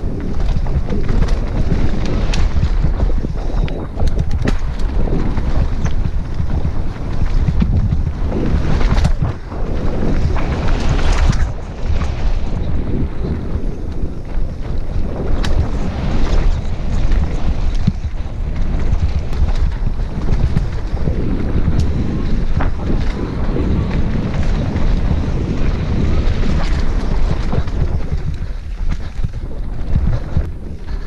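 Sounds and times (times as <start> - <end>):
bike clicks and rattles: 0.0 - 31.0
tyres rumbling over dirt trail: 0.0 - 31.0
wind buffeting microphone: 0.0 - 31.0.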